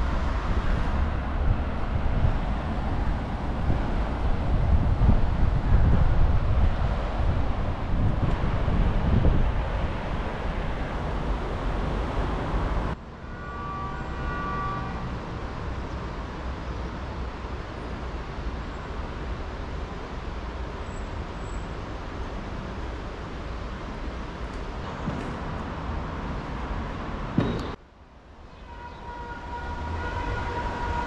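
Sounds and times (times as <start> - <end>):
wind on microphone: 0.0 - 11.4
horn-like tone: 13.3 - 15.2, 28.5 - 31.0.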